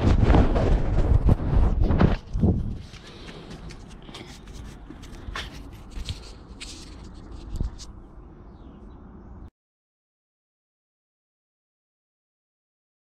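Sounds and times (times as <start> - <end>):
fingers rubbing on camera: 2.8 - 8.0.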